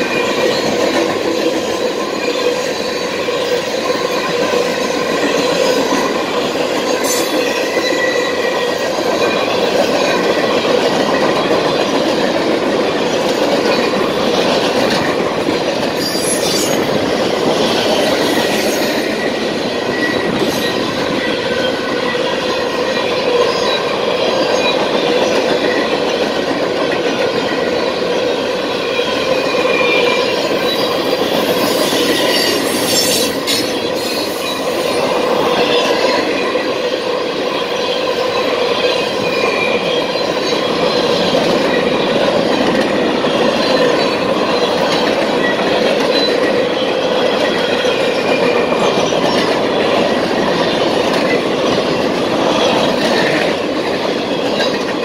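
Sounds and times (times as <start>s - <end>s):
train wheels rumbling on rail: 0.0s - 55.0s
wheels clicking over rail joints: 37.8s - 55.0s.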